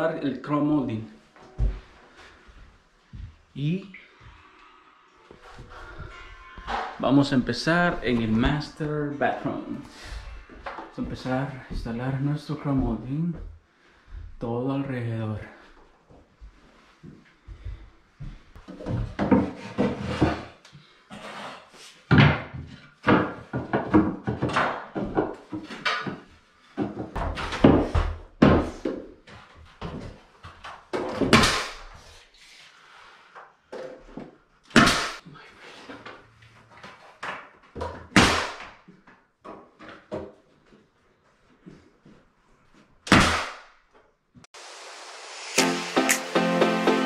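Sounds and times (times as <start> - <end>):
wooden molding knocks and thumps: 22.1 - 29.1.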